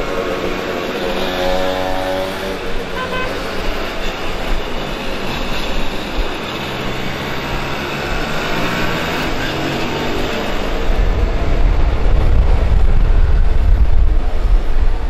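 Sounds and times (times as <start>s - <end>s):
wind rushing: 6.9s - 15.0s.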